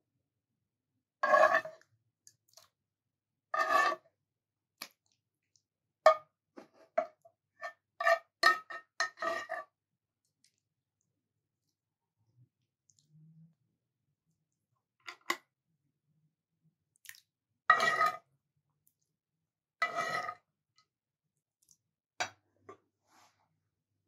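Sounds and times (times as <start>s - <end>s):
metal spoon scraping frying pan: 1.2s - 1.8s, 3.6s - 4.0s, 7.6s - 9.8s, 17.7s - 18.3s, 19.8s - 20.4s.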